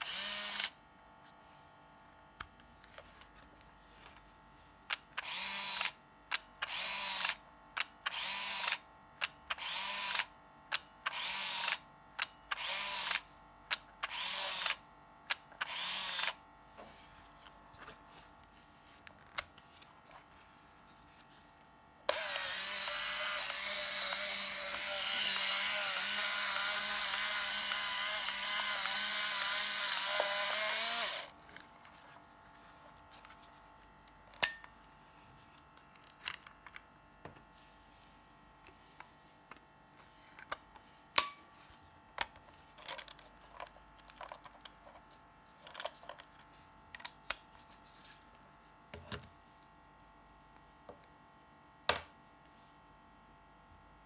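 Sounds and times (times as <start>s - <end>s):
camera film winding motor whir: 0.0s - 0.8s, 4.9s - 16.4s, 22.1s - 31.4s.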